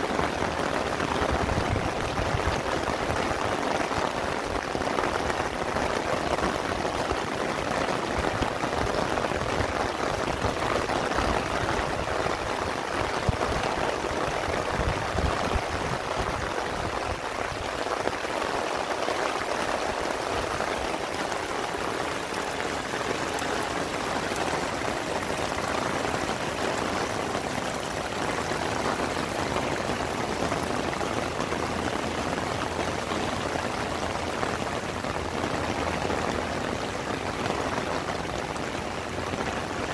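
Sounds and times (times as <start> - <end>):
heavy rain on roof and panels: 0.0 - 39.9.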